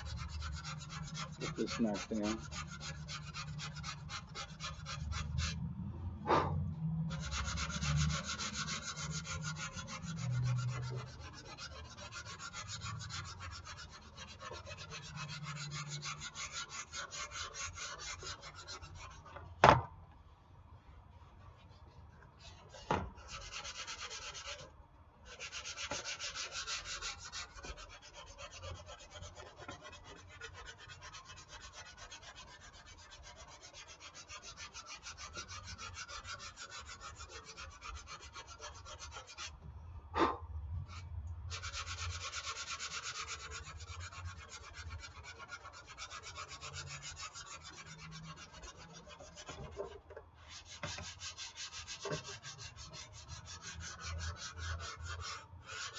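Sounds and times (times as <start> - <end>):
sandpaper scraping filler: 0.0 - 5.6, 7.1 - 19.3, 22.4 - 39.5, 41.5 - 55.9
sharp knocks: 19.6 - 19.9.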